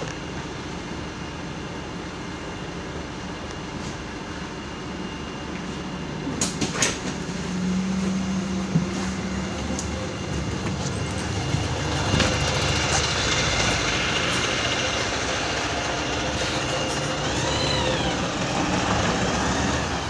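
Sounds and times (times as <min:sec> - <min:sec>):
bus engine and road rumble: 0:05.5 - 0:20.0.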